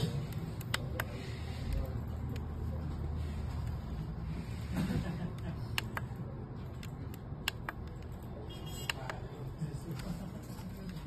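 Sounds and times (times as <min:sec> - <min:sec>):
keypad buttons clicking: 0:05.3 - 0:09.2.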